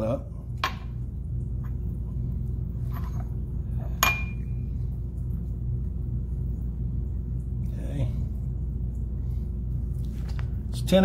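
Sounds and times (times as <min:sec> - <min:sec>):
low hum: 0:00.0 - 0:11.0
glass beaker clinking: 0:04.0 - 0:04.5.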